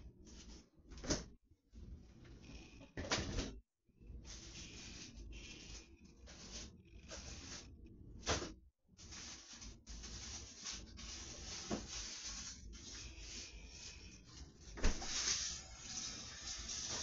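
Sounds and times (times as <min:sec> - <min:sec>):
rustling and handling noises: 0:04.2 - 0:17.0.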